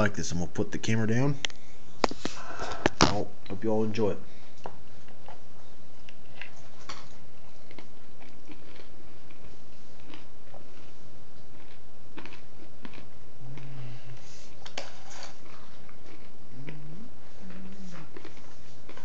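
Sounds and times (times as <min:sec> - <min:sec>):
steady low hum: 0:00.0 - 0:19.0
person chewing and biting: 0:04.6 - 0:19.0.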